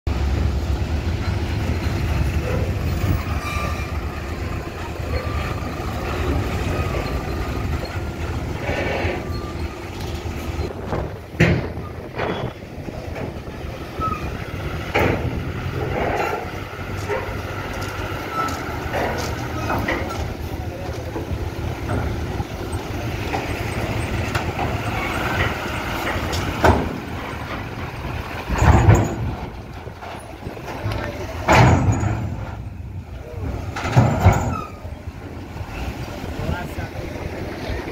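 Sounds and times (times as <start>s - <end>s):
diesel truck driving past: 0.1s - 37.9s
wheels thumping over ramp plates: 10.0s - 20.5s, 23.2s - 35.0s.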